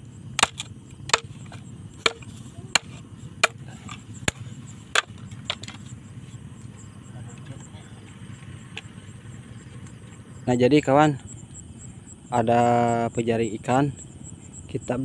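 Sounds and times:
chopping on wood: 0.4 - 5.8.

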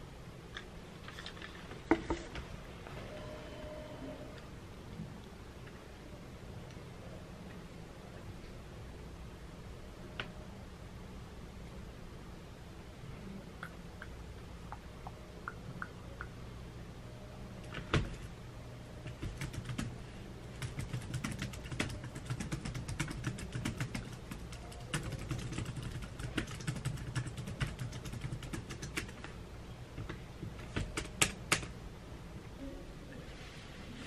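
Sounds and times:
fast typing on laptop keyboard: 19.0 - 29.3, 30.0 - 31.7.

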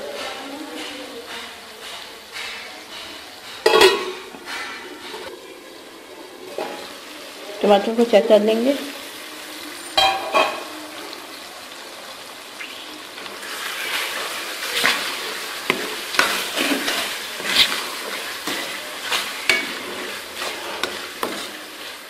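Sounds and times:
spoon scraping a pan: 0.1 - 5.3, 13.2 - 22.0
meat sizzling in oil: 0.6 - 22.0
spoon knocking on metal: 19.4 - 21.5.

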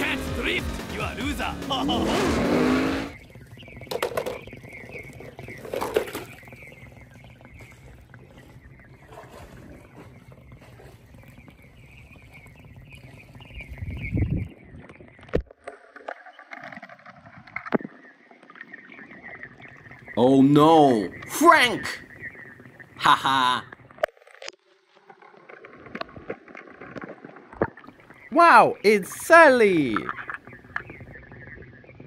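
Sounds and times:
car engine: 0.0 - 3.2
film soundtrack music: 0.0 - 3.2.

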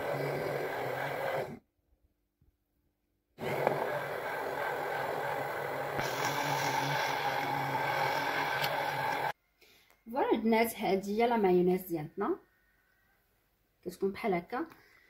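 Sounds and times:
immersion blender motor whirring: 0.0 - 1.6, 3.4 - 9.4.

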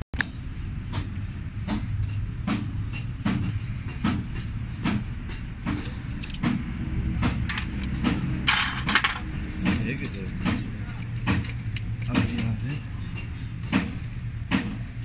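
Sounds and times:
metal tools clinking: 8.5 - 9.3.

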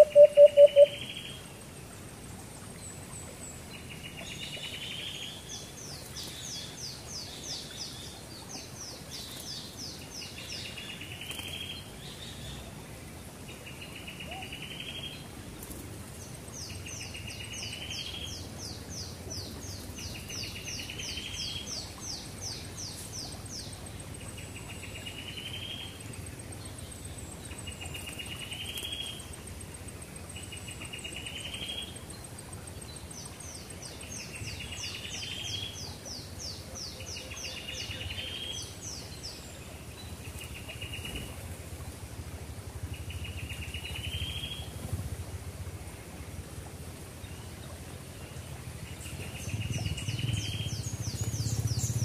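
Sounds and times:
high falling bird chirps: 0.0 - 1.0
low steady background rumble: 0.0 - 52.0.

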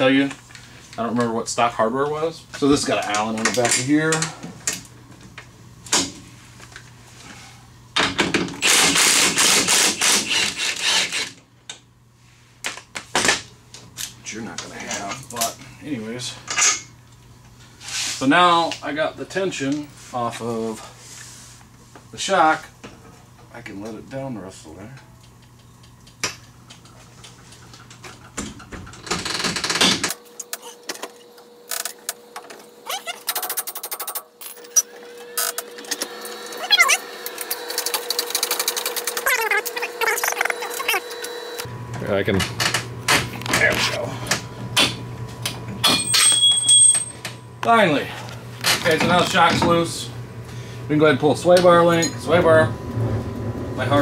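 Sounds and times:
rasping power tool: 8.6 - 11.4.

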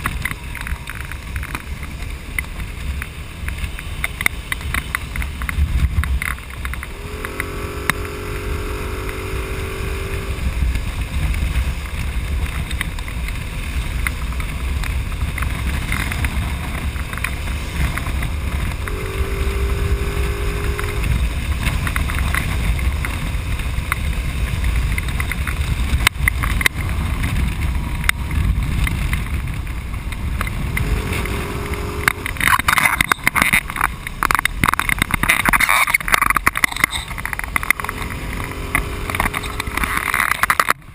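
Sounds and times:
engine and road rumble: 0.0 - 40.9
wind rushing over microphone: 0.0 - 40.9
humming engine tone: 6.2 - 11.0, 15.8 - 22.1, 30.3 - 33.8, 35.9 - 40.8
loud rapid crackles and rustles: 9.0 - 40.9.

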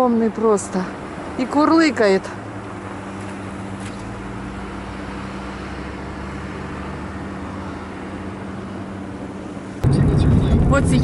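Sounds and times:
car engine idling: 7.2 - 11.0.

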